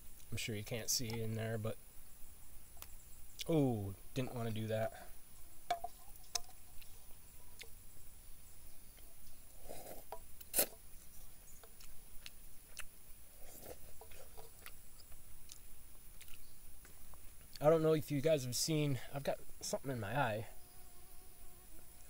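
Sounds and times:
quiet chewing: 0:02.7 - 0:03.6, 0:05.8 - 0:17.7.

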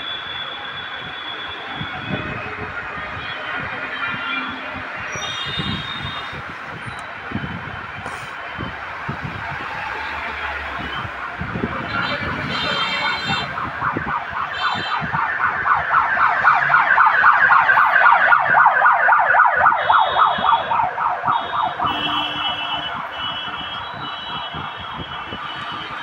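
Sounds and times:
warbling siren passing: 0:13.0 - 0:23.1.

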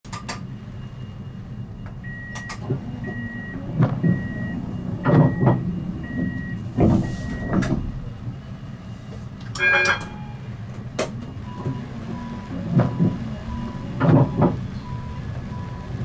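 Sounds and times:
tram door warning beeps: 0:00.1 - 0:16.0
tram humming: 0:00.1 - 0:16.0.

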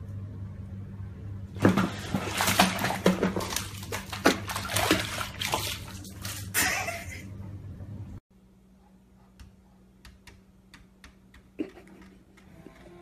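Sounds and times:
cat splashing in bath water: 0:01.6 - 0:07.0.

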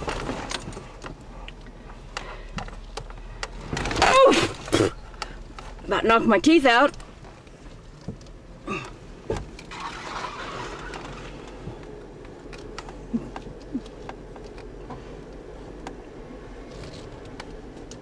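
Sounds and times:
body and suspension rattling: 0:00.0 - 0:18.0
engine running at low speed: 0:07.0 - 0:18.0.

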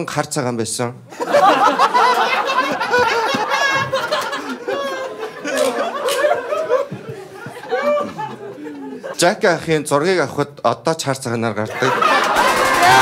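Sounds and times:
group of people laughing: 0:01.1 - 0:09.7, 0:11.7 - 0:13.0.

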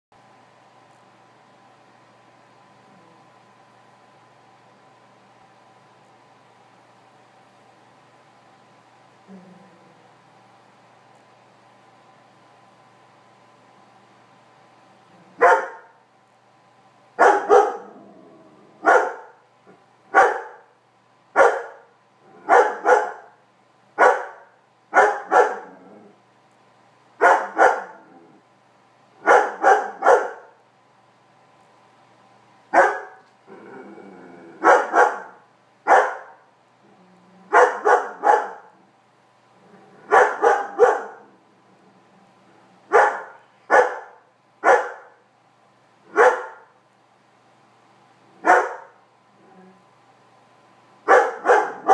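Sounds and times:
dog barking: 0:15.4 - 0:16.0, 0:17.2 - 0:17.9, 0:18.8 - 0:19.4, 0:20.1 - 0:20.7, 0:21.4 - 0:23.4, 0:24.0 - 0:25.7, 0:27.2 - 0:28.0, 0:29.2 - 0:30.6, 0:32.8 - 0:33.2, 0:34.6 - 0:36.4, 0:37.5 - 0:38.7, 0:40.1 - 0:41.3, 0:42.9 - 0:45.2, 0:46.1 - 0:46.7, 0:48.4 - 0:49.0, 0:51.0 - 0:51.9.

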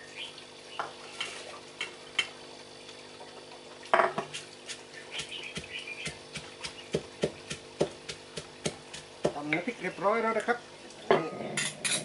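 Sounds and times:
pestle and plate clicking: 0:04.1 - 0:09.7.

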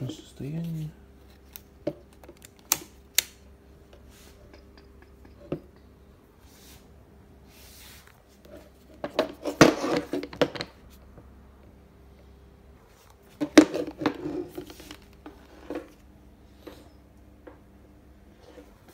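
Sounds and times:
clatter on a table: 0:09.0 - 0:10.8.

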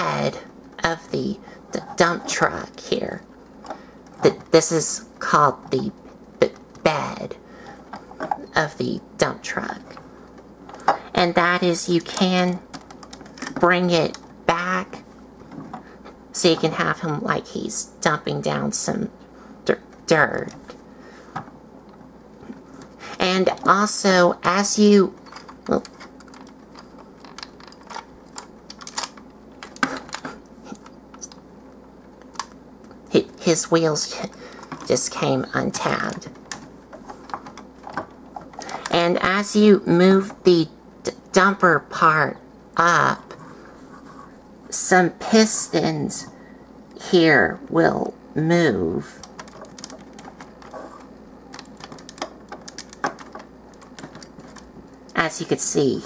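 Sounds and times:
plastic toy clicks and rattles: 0:49.2 - 0:50.8, 0:51.5 - 0:54.7.

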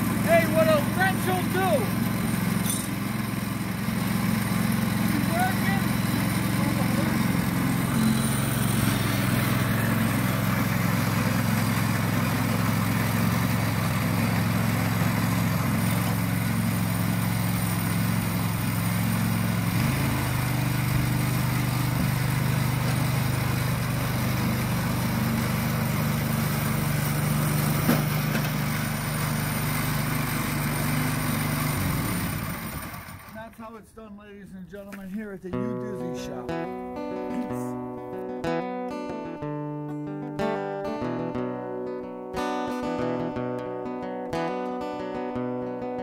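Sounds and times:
snowblower engine running: 0:00.0 - 0:33.6.

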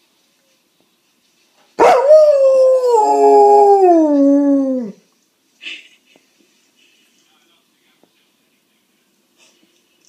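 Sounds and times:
dog howling: 0:01.8 - 0:05.0.

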